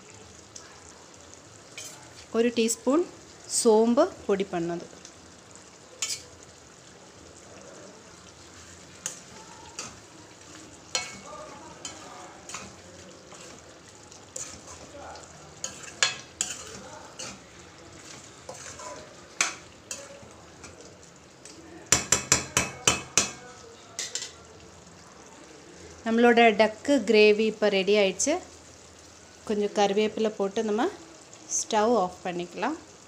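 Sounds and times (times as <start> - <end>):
curry bubbling: 0.0 - 31.8
metal spoon scraping pan: 1.8 - 2.0, 6.0 - 6.3, 8.4 - 13.7, 14.3 - 15.0, 15.6 - 20.8.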